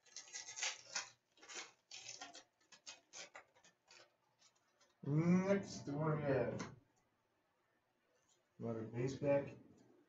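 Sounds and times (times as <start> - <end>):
cards being sorted: 0.0 - 5.0
foil packs crinkling: 0.0 - 5.0.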